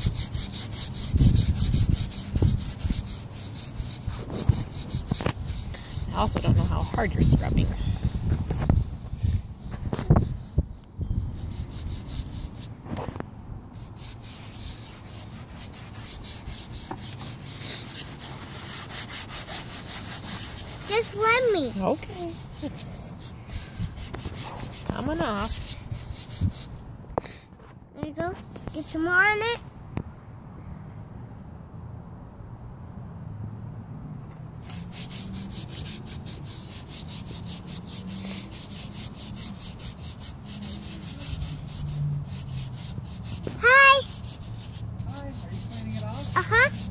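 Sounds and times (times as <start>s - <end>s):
cloth scrubbing door panel: 0.0s - 10.7s, 13.8s - 26.7s, 34.6s - 46.9s.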